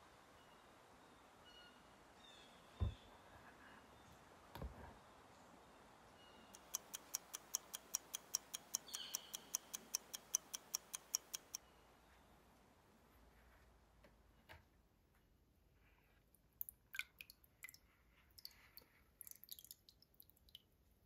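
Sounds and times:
clock ticking quickly: 0:06.6 - 0:11.6.

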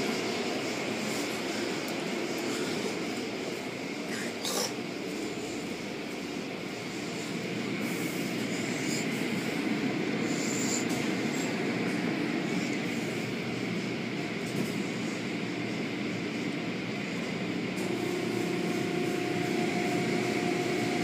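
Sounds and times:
car wash machine noise: 0:17.4 - 0:21.0.

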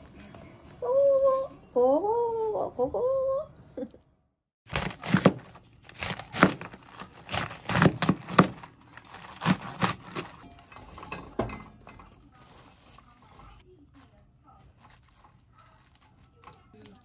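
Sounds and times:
knife chopping cabbage on board: 0:04.7 - 0:10.4.

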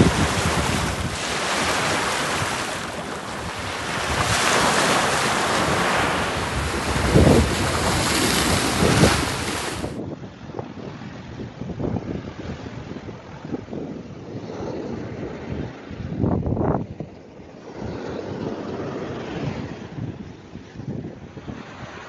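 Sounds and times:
sea waves breaking: 0:00.0 - 0:10.0
wind buffeting microphone: 0:00.0 - 0:22.0.

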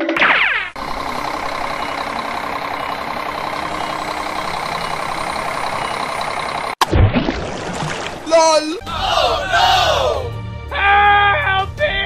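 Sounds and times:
heavy machine engine running: 0:00.7 - 0:06.8.

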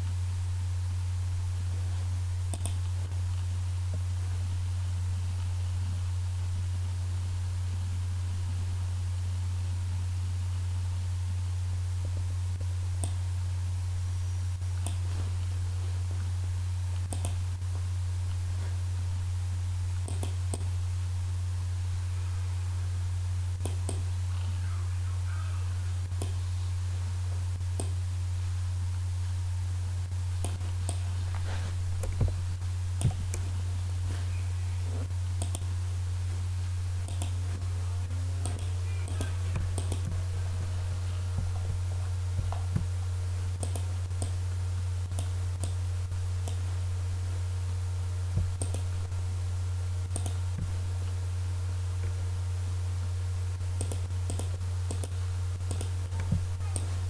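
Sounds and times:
steady low hum: 0:00.0 - 0:57.0
computer mouse clicks: 0:02.5 - 0:02.9, 0:13.0 - 0:13.2, 0:14.8 - 0:15.1, 0:17.0 - 0:17.4, 0:20.0 - 0:20.7, 0:23.6 - 0:24.1, 0:26.2 - 0:26.4, 0:27.8 - 0:28.0, 0:30.4 - 0:31.0, 0:35.4 - 0:35.7, 0:37.0 - 0:37.4, 0:38.4 - 0:40.2, 0:43.6 - 0:44.4, 0:45.1 - 0:45.8, 0:46.4 - 0:46.6, 0:48.5 - 0:48.9, 0:50.1 - 0:50.7, 0:53.8 - 0:56.9.

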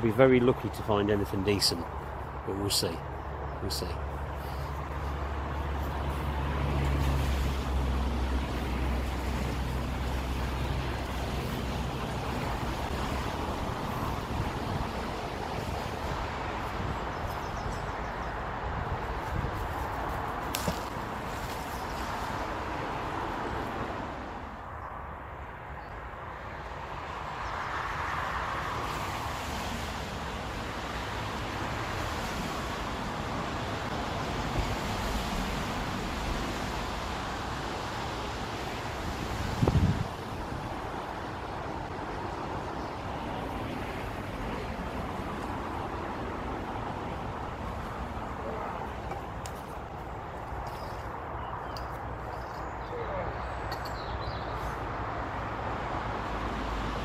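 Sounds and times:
wind buffeting the microphone: 0:06.8 - 0:22.4, 0:38.8 - 0:51.2.

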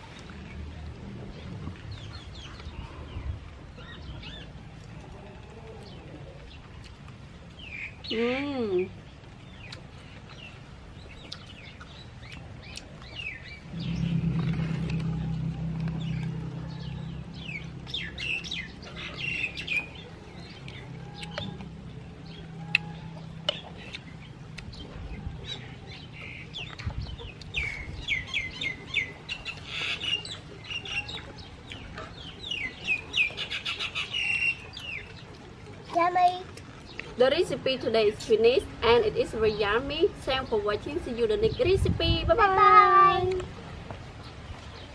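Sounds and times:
small birds chirping: 0:01.4 - 0:44.9
low steady drone: 0:12.0 - 0:33.4.

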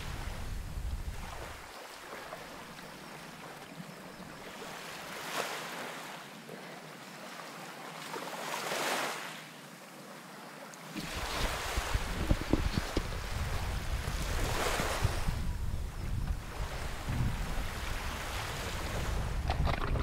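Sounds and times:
wind buffeting microphone: 0:00.0 - 0:01.7, 0:11.0 - 0:20.0
waves washing against rocks: 0:11.0 - 0:15.4, 0:17.0 - 0:20.0.

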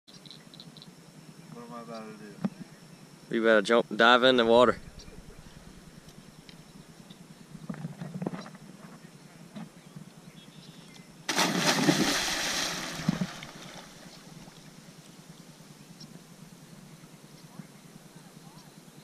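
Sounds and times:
loud splash into water: 0:11.3 - 0:14.6
water churning: 0:11.3 - 0:14.7.

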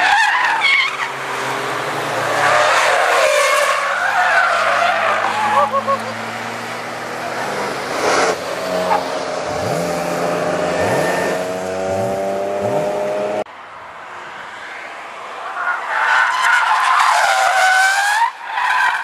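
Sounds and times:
car engines revving: 0:00.0 - 0:19.0
tyres squealing: 0:02.2 - 0:09.8.

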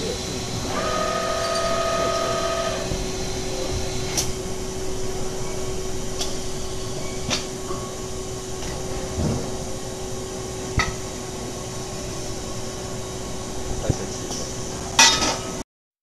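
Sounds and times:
high cutting whine: 0:00.0 - 0:07.1
machine humming: 0:00.0 - 0:15.0.

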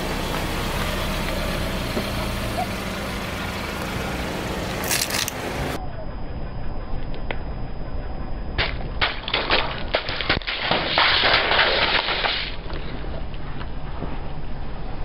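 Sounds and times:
low steady rumble: 0:00.0 - 0:15.0
plastic tubes bursting and crackling: 0:08.6 - 0:12.9.

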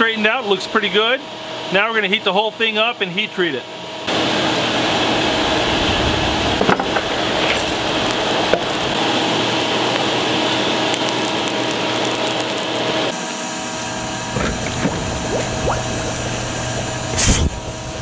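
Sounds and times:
forge roaring under forced air: 0:03.7 - 0:18.0
tongs clicking in coals: 0:07.4 - 0:13.1.

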